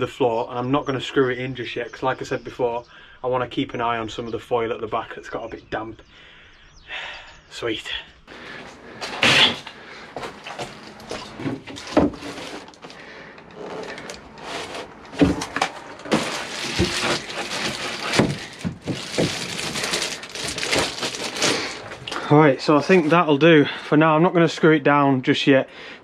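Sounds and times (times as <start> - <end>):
boards scraping and rustling: 8.4 - 22.2
boards knocking and thudding: 9.0 - 21.1.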